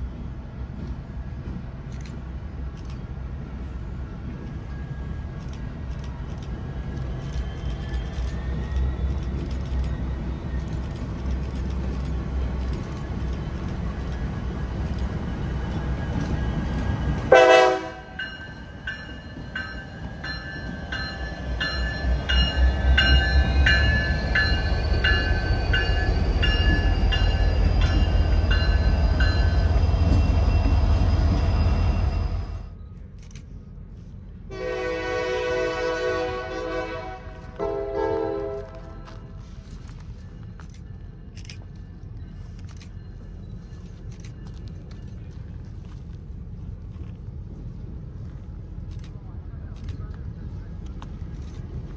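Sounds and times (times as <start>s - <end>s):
train rumbling: 0.0s - 51.9s
pulsing ringing: 18.1s - 32.7s.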